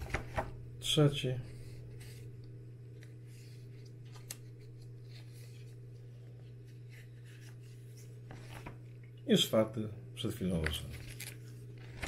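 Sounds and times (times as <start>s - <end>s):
steady low hum: 0.0s - 12.0s
magazine pages turning: 1.5s - 9.0s, 10.5s - 12.0s.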